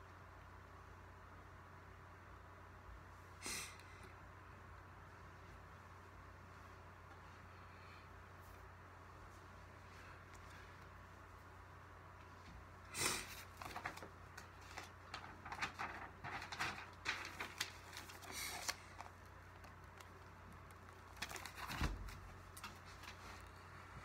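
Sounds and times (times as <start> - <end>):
paper rustling: 13.1 - 23.6.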